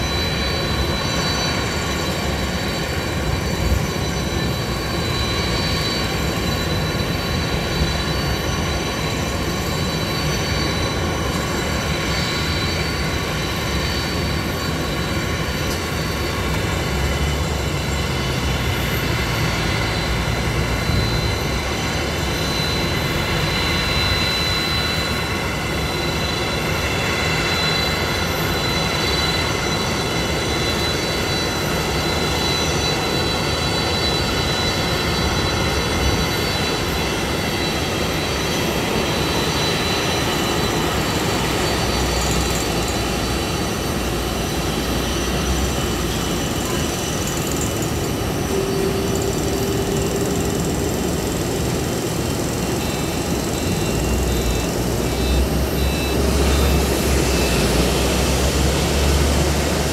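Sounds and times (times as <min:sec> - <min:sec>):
high engine whine: 0:00.0 - 0:59.9
jet engines at taxi power: 0:00.0 - 0:59.9.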